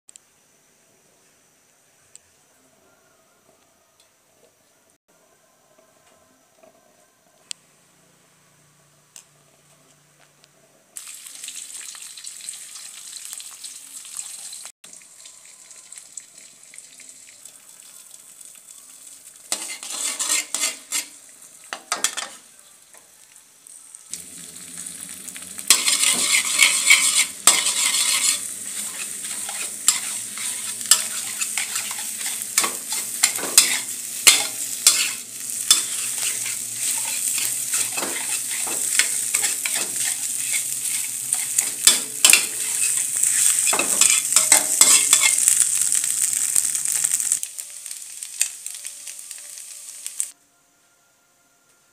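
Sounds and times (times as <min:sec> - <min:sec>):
eggs sizzling in oil: 0:11.0 - 0:50.4
metal spatula scraping pan: 0:19.5 - 0:21.2, 0:21.8 - 0:22.4, 0:25.0 - 0:45.6.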